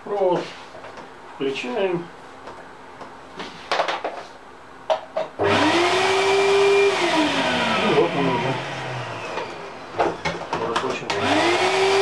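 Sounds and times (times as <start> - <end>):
shop vacuum motor whining: 5.4 - 12.0.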